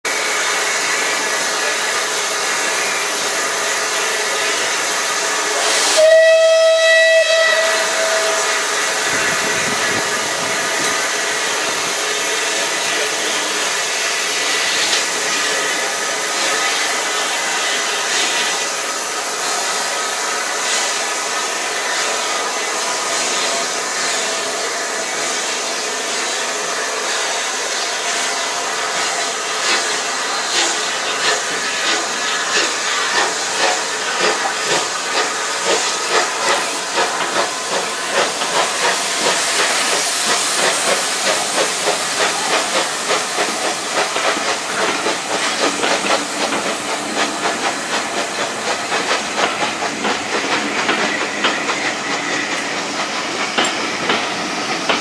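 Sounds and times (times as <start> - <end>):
steam hiss: 0.1 - 55.0
steam locomotive whistle: 5.6 - 9.9.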